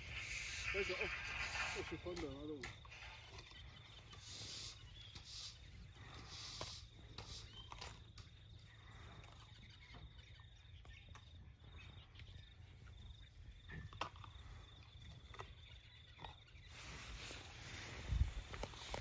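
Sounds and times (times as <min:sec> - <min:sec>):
insect drone: 0:00.0 - 0:19.0
elephant crunching food: 0:13.7 - 0:19.0
low wind rumble: 0:16.8 - 0:19.0.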